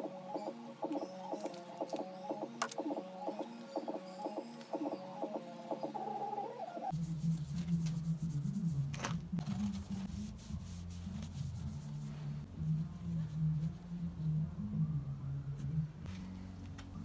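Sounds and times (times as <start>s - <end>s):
cloth wiping on metal: 6.9s - 8.9s, 9.6s - 14.0s
low steady hum: 6.9s - 17.0s.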